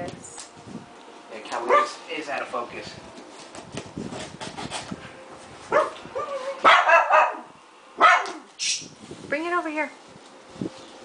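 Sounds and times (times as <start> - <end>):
dog barking: 1.6 - 2.0, 5.7 - 8.5.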